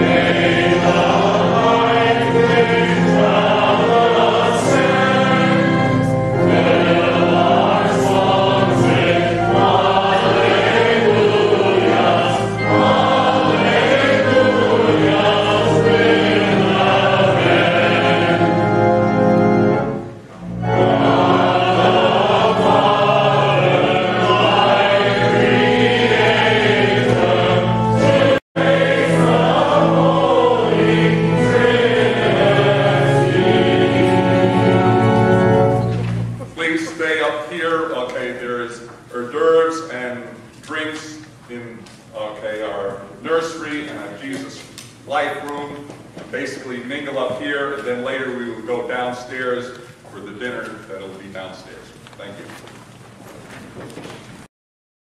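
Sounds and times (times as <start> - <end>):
group singing a hymn: 0.0 - 38.4.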